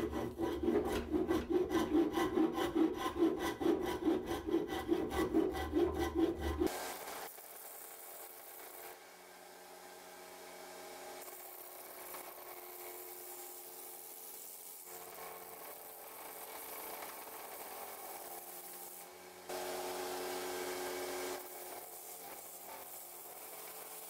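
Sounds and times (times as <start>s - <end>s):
metal scraping on sanding belt: 0.0s - 6.7s.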